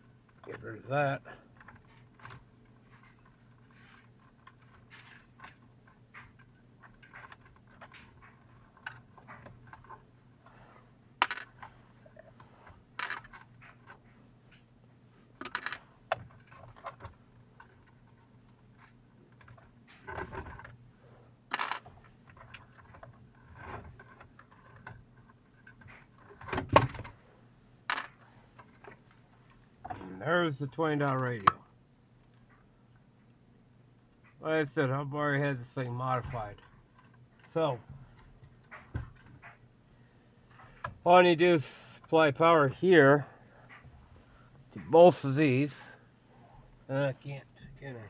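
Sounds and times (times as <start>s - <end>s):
faint steady hum: 0.0s - 48.0s
small tools clicking and knocking: 11.2s - 14.7s, 15.4s - 20.8s, 21.5s - 27.1s, 27.9s - 29.2s.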